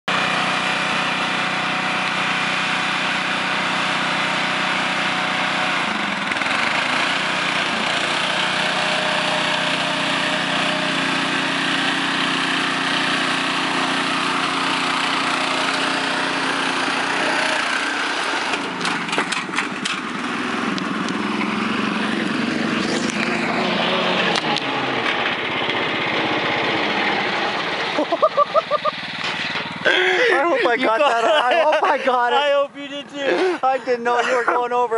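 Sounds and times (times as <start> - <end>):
lawn mower engine running hard: 0.1 - 34.9
sharp knocks and clatters: 18.5 - 20.1, 29.2 - 29.8.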